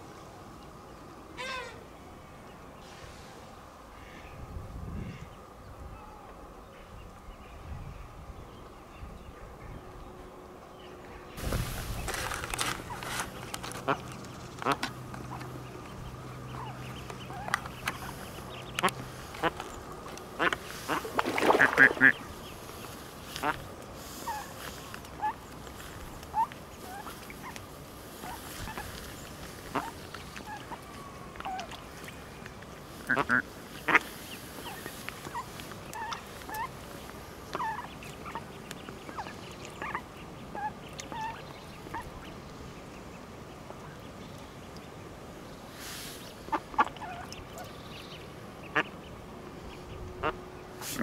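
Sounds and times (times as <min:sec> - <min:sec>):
duck quacking: 0:33.1 - 0:34.1, 0:50.2 - 0:51.0.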